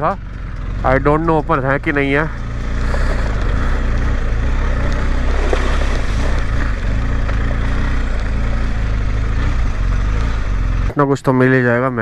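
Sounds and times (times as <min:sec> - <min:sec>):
motorcycle engine running: 0:00.0 - 0:11.5
wind noise: 0:02.8 - 0:10.5.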